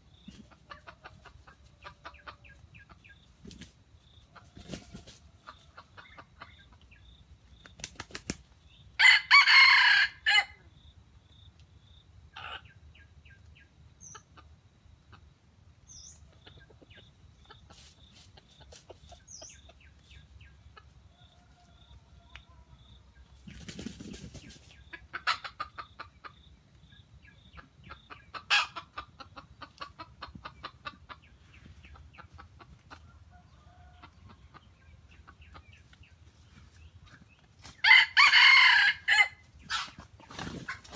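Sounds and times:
rooster crowing: 0:09.0 - 0:10.6, 0:37.8 - 0:39.4.

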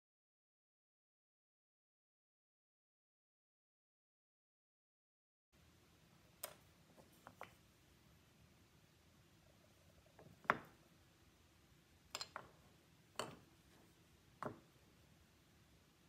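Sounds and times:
wooden blocks knocking: 0:10.2 - 0:10.8, 0:12.1 - 0:14.8.

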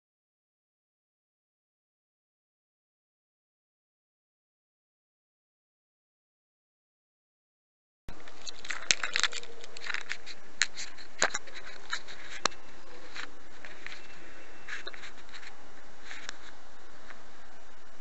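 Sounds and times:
microphone hiss: 0:08.1 - 0:18.0
camera handling clicks and scrapes: 0:08.3 - 0:14.1.

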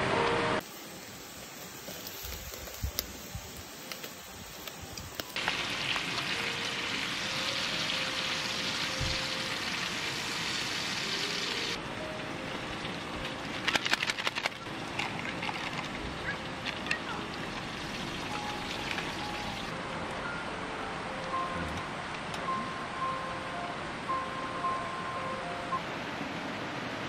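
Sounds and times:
meat sizzling on grill pan: 0:01.5 - 0:11.8.

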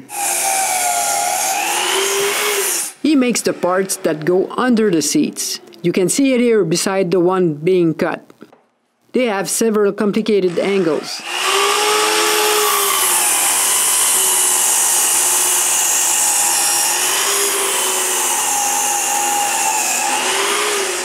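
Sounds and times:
saw blade hissing through wood: 0:00.0 - 0:03.0
miter saw motor whine: 0:11.2 - 0:21.0.

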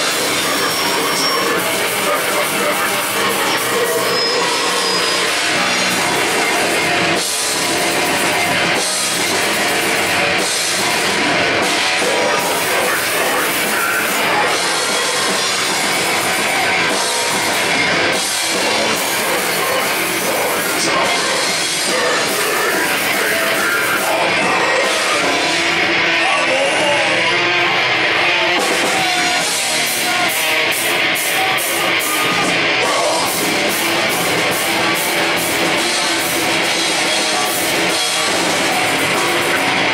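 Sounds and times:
heavy metal band playing live: 0:00.0 - 0:39.9.

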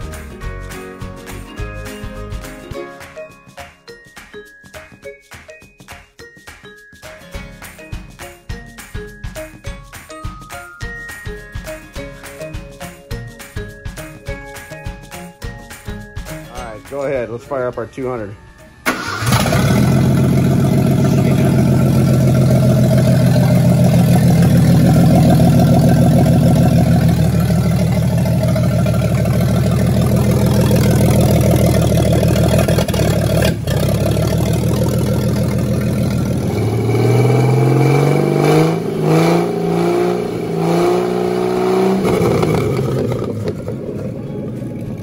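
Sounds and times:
music: 0:00.0 - 0:45.0
engine running steadily: 0:18.8 - 0:45.0.

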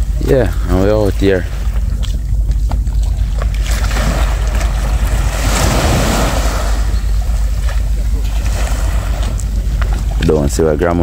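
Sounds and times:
wind buffeting microphone: 0:00.0 - 0:11.0
small waves breaking: 0:03.5 - 0:10.2.

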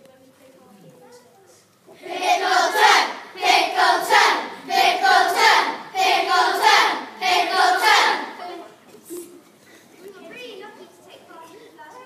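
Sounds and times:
children singing together: 0:02.0 - 0:08.4.

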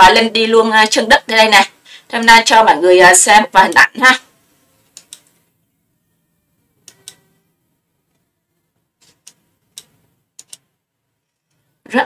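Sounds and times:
computer mouse clicks: 0:04.9 - 0:05.4, 0:06.8 - 0:07.3, 0:09.0 - 0:10.7.

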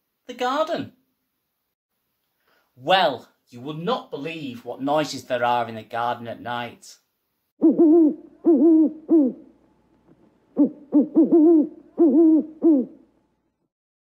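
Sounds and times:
owl hooting: 0:07.6 - 0:09.5, 0:10.5 - 0:13.0.

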